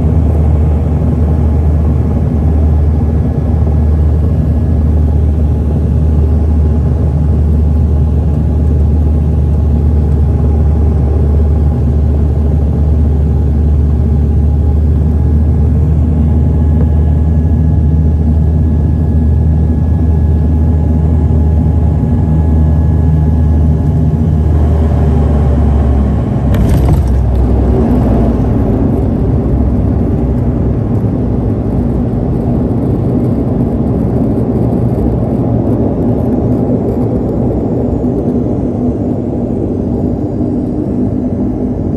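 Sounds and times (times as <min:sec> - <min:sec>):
propeller airliner engine drone: 0:00.0 - 0:41.9
wheels touching down thump: 0:26.5 - 0:27.5
landing roll rumble: 0:26.5 - 0:28.9.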